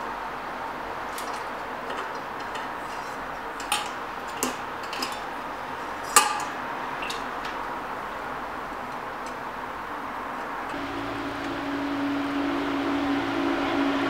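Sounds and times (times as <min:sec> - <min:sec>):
steady background hiss: 0:00.0 - 0:14.0
metal bird feeder clinking: 0:01.1 - 0:05.4, 0:06.0 - 0:07.3.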